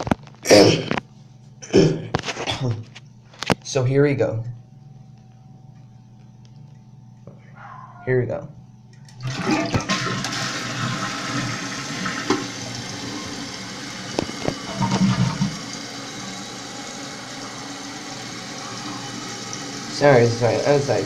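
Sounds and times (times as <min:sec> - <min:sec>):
low gurgle: 0:09.2 - 0:20.1
toilet tank water rushing: 0:09.2 - 0:21.0.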